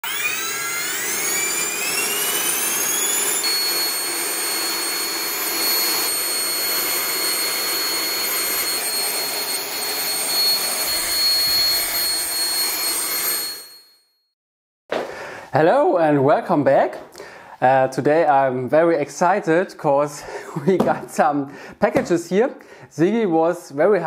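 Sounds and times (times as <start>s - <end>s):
electric ducted fan whining: 0.0s - 13.5s.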